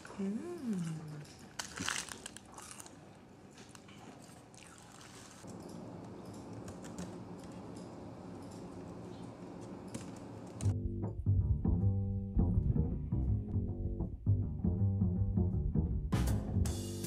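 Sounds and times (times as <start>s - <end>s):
paper wrappers rustling: 0.0s - 5.5s
chewing: 0.0s - 5.6s.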